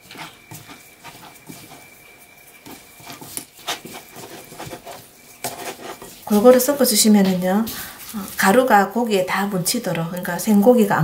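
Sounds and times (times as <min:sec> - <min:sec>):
hands squishing chicken in flour: 0:00.0 - 0:08.8.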